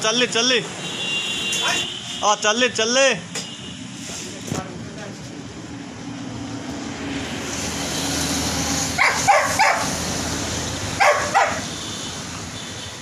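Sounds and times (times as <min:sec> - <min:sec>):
vehicle passing: 0:05.0 - 0:12.6
dog barking: 0:09.0 - 0:10.0, 0:11.0 - 0:11.7.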